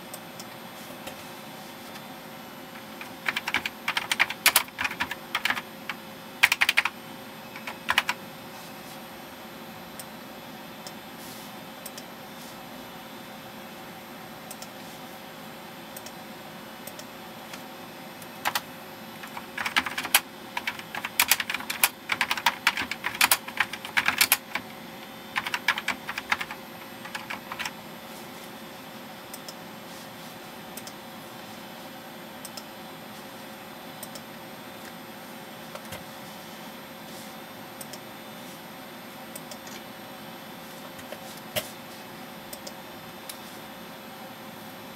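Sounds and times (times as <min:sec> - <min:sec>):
steady machine hum: 0:00.0 - 0:44.9
typing on keyboard: 0:02.8 - 0:06.9, 0:07.6 - 0:08.2, 0:18.4 - 0:24.7, 0:25.3 - 0:27.8.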